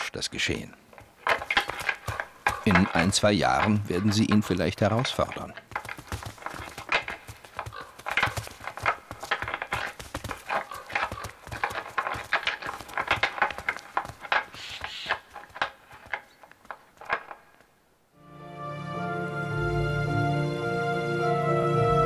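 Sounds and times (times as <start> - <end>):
antlers clacking together: 0.8 - 17.7.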